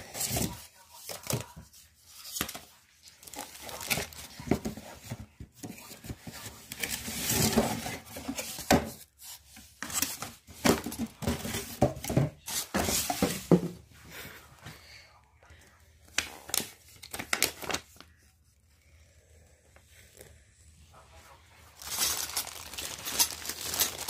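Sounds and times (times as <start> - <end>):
cardboard scraping and knocking: 9.8 - 13.8
plastic bags crinkling: 21.7 - 24.0.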